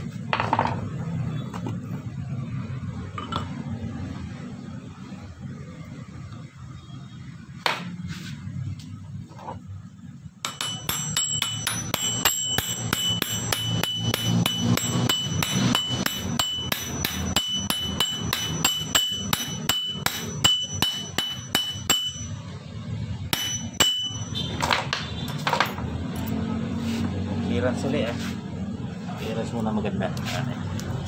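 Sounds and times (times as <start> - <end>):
hammer tapping on metal: 10.4 - 22.4, 23.3 - 25.8
pulley ringing: 10.5 - 22.4, 23.4 - 24.6.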